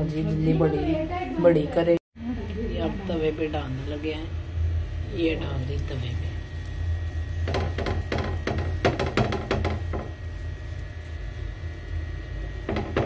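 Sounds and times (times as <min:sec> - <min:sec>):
low hum: 0:02.2 - 0:13.0
hands patting dough on a griddle: 0:07.4 - 0:10.8, 0:12.6 - 0:13.0.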